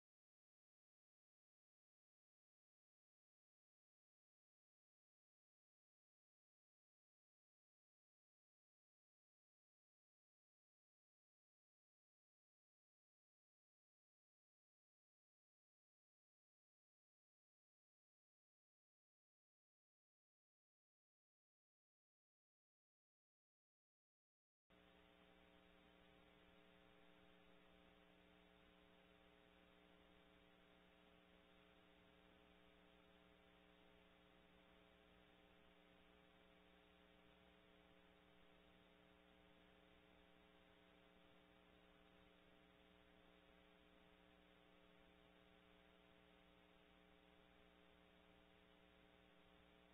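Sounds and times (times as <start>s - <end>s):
faint electrical hum with hiss: 24.7s - 49.9s.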